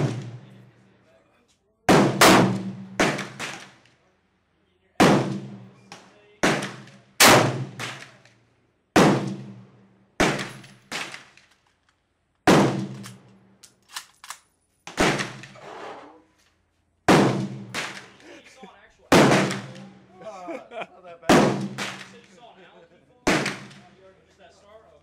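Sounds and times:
rifle shots echoing: 0.0 - 0.6, 1.9 - 3.8, 5.0 - 5.7, 6.4 - 8.2, 9.0 - 11.4, 12.4 - 13.3, 14.9 - 15.6, 17.1 - 18.2, 19.1 - 20.0, 21.3 - 22.2, 23.2 - 23.9.

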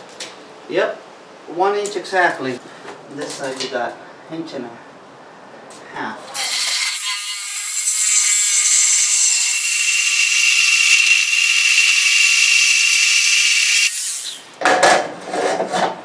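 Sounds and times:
power tool grinding whine: 7.8 - 14.4.

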